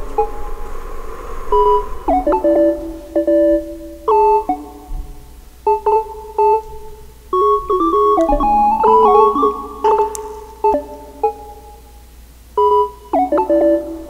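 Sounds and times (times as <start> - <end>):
synthesizer notes: 1.6 - 11.7.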